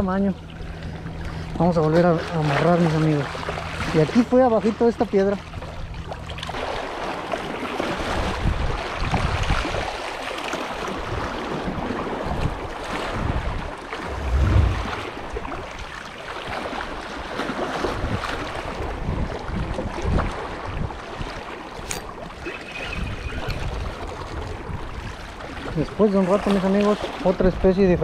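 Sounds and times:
wind buffeting microphone: 11.0 - 16.0.

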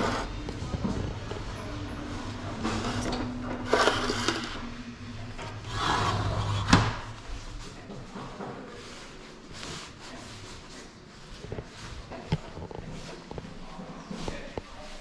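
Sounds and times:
sliding window frame scraping: 0.0 - 0.4, 2.6 - 7.3.

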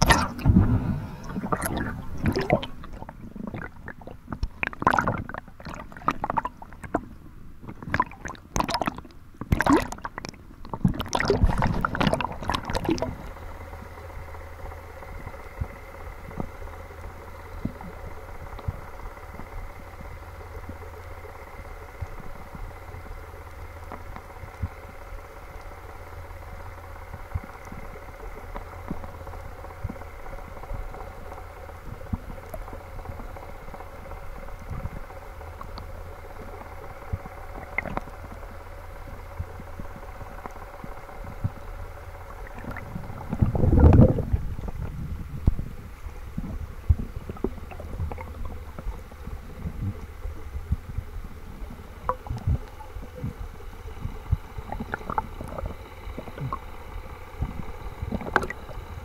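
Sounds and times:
gurgling rush of bubbles: 0.0 - 13.8, 31.9 - 38.4, 39.0 - 59.0
underwater boat engine hum: 0.0 - 59.0.

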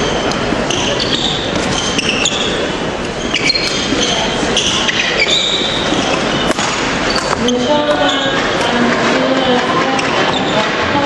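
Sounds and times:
murmur of crowd chatter: 0.0 - 11.0
sports shoes squeaking: 0.0 - 11.0.

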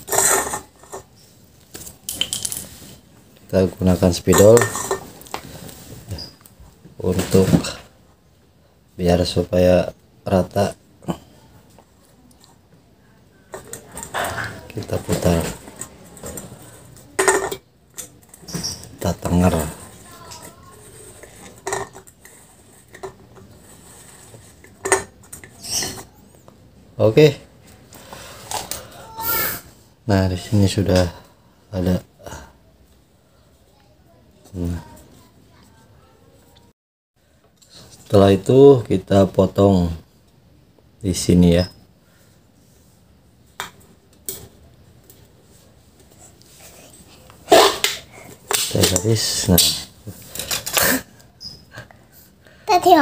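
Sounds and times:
metal can scraping on tile: 0.0 - 1.1, 20.4 - 26.0.

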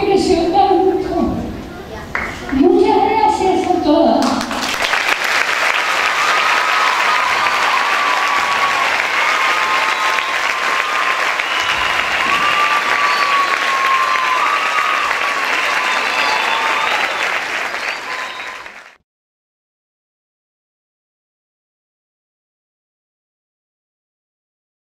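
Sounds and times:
audience applauding: 2.1 - 2.6, 4.2 - 19.0.

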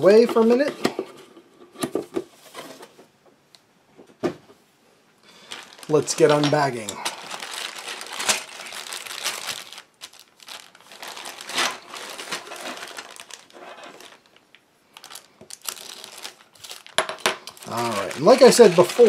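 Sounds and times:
plastic bag crinkling: 5.3 - 19.0.

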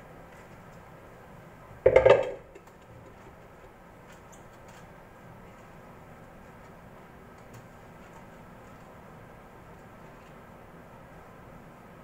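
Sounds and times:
bowl knocking on metal tray: 1.9 - 2.4.

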